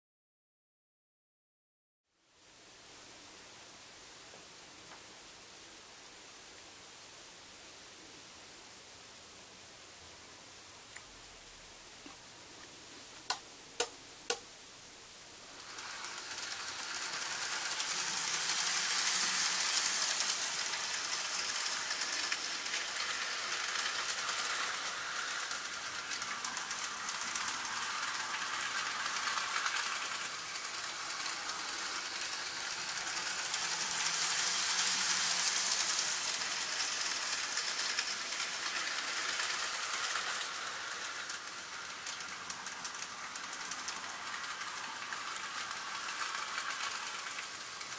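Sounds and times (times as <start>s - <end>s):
model train wheels whirring: 12.1s - 14.5s, 15.3s - 47.9s.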